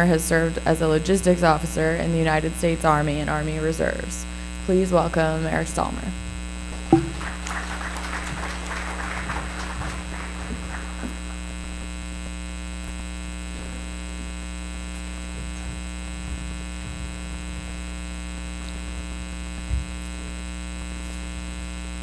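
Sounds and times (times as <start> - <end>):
electrical mains hum: 0.0 - 22.0
applause: 6.7 - 11.6
low thump: 6.8 - 7.2.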